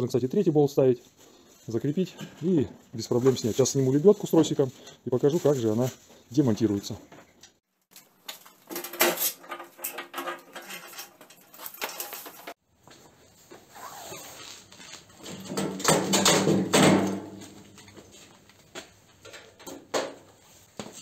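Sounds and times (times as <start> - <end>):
metal knocks and clanks: 15.2 - 17.7.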